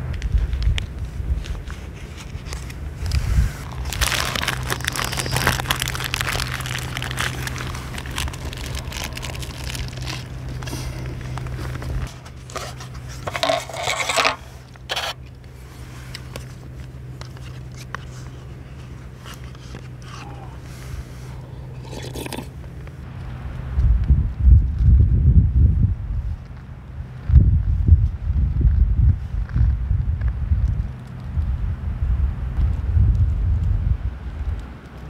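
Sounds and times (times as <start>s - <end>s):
steady low hum: 0.0s - 35.0s
plastic wrapper crinkling: 0.8s - 15.2s
paper tray scraping metal table: 12.0s - 15.2s.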